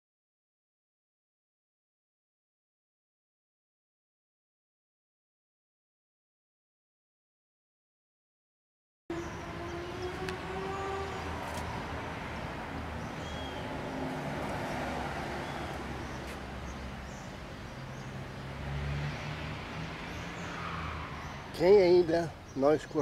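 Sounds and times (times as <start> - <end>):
distant road traffic hum: 9.1 - 23.0.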